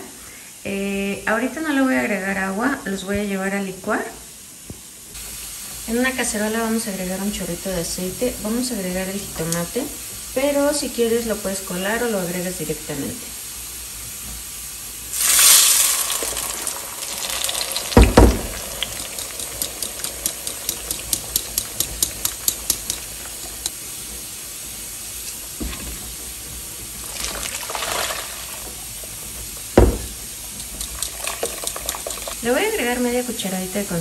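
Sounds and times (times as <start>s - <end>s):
liquid pouring and splashing: 15.1s - 32.5s
knocks: 18.0s - 18.6s, 29.6s - 30.2s
strainer quick regular clicks: 18.9s - 23.8s, 30.6s - 32.4s.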